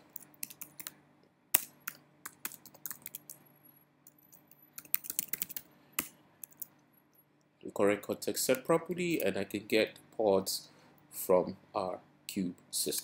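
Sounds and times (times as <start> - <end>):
computer keyboard typing: 0.1 - 1.0, 1.6 - 3.4, 4.3 - 6.7.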